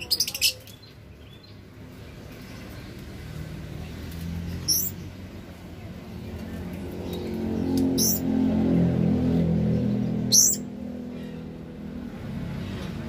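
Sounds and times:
lovebirds chirping: 0.0 - 5.2, 5.8 - 8.3, 9.8 - 11.5.

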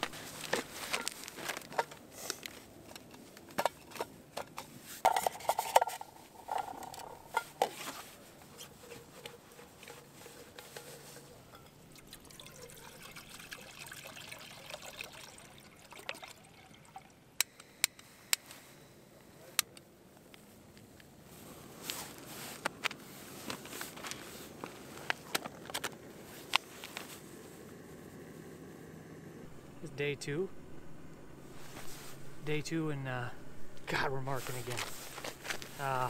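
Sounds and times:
liquid pouring from thermos: 11.9 - 17.3.

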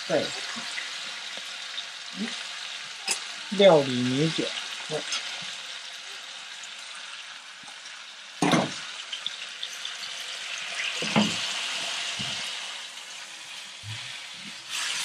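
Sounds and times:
meat sizzling in a wok: 0.0 - 15.0.

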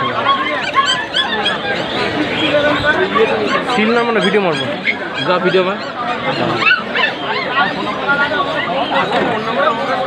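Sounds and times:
high-pitched animal squeaks: 0.0 - 2.1
overlapping crowd voices: 0.0 - 10.0.

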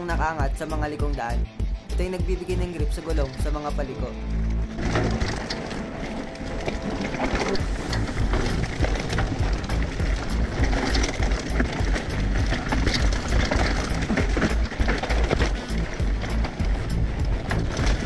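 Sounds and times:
background music: 0.0 - 18.0
mountain bike rattling on dirt trail: 0.0 - 18.0
bike tyres knocking on bumps: 4.5 - 18.0.

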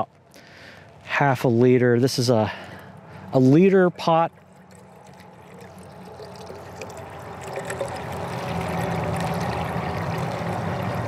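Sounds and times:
water pouring into metal pot: 4.6 - 11.0.

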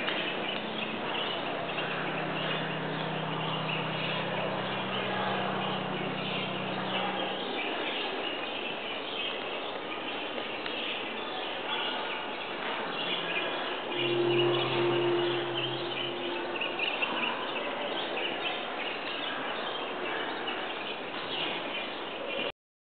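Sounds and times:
low steady hum: 0.4 - 7.7, 13.8 - 18.0.

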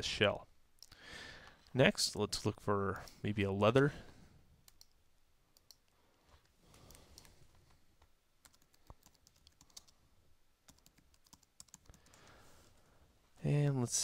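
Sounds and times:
typing on a keyboard: 8.4 - 10.0, 10.7 - 12.3.

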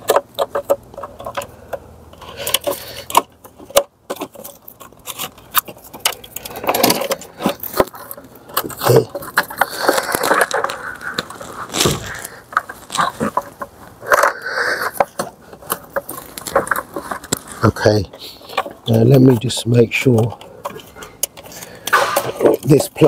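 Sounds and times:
plastic clicks and scraping: 0.0 - 23.0.

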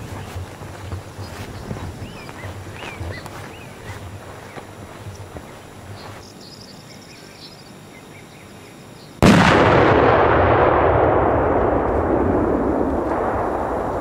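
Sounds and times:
faint bird chirps: 1.0 - 9.2
firecracker blast: 9.2 - 14.0
long rumbling noise: 9.2 - 14.0.

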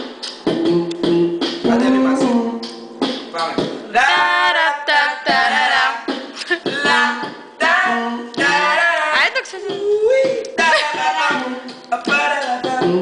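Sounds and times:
man beatboxing into microphone: 0.0 - 13.0
man singing a cappella: 0.5 - 2.7, 3.8 - 13.0.

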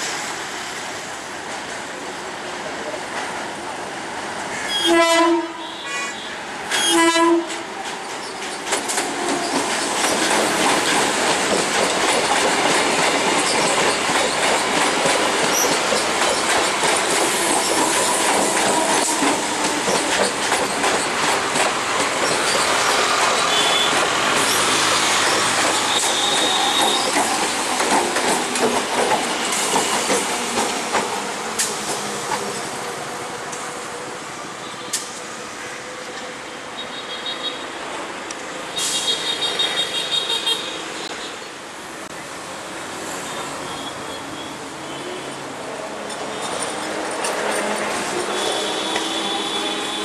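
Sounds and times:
train horn blasts: 4.7 - 7.6, 48.2 - 50.0
train wheels clattering on bridge: 7.4 - 32.8.

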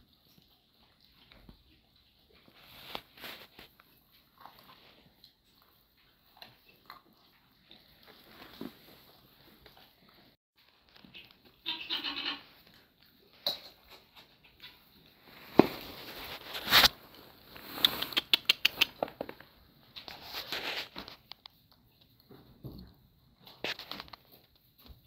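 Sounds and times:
puppies scuffling on straw: 2.5 - 3.7, 15.2 - 18.1, 20.1 - 21.2.

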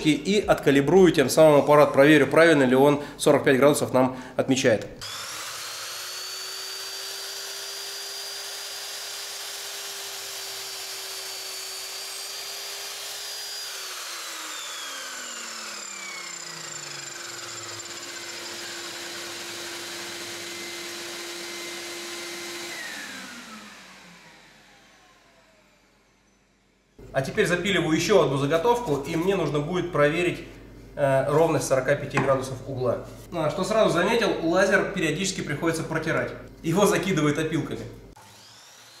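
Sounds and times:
miter saw motor whining: 5.0 - 26.6, 38.2 - 39.0.

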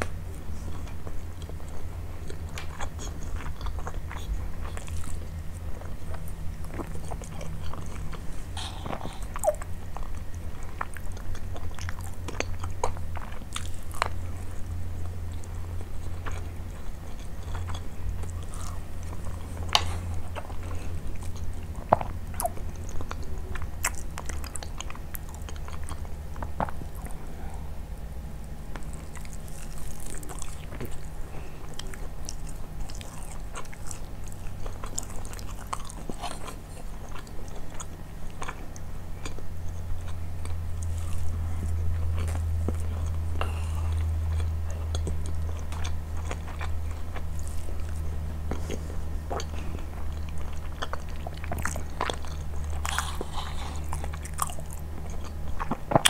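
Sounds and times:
chewing and biting food: 0.0 - 56.0
steady low hum: 0.0 - 56.0.

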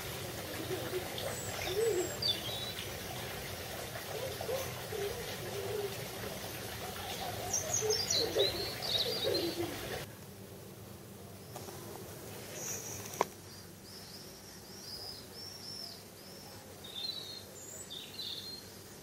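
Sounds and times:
doves cooing: 0.0 - 10.1
songbird chirping: 0.0 - 10.1, 12.4 - 18.9.

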